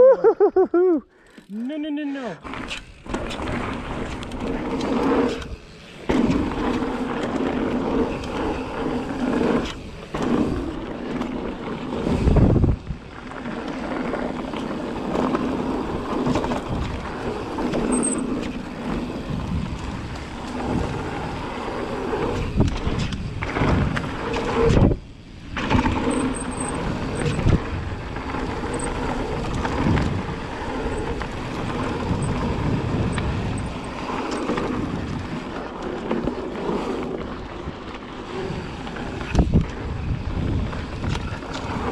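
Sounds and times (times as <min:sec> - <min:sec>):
bike tyre and frame rattle: 0:02.4 - 0:41.9
wind on microphone: 0:12.0 - 0:13.1, 0:22.1 - 0:33.9, 0:37.4 - 0:41.9.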